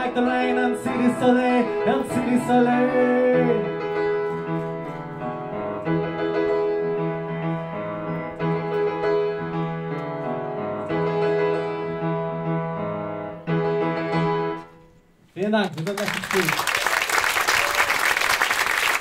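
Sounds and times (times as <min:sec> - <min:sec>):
piano chords: 0:00.0 - 0:15.2.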